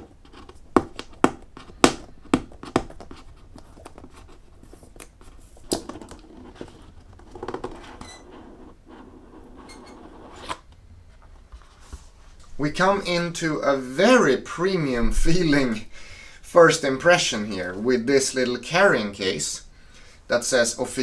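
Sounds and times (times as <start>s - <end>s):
fingers clicking on cardboard box: 0.2s - 4.4s.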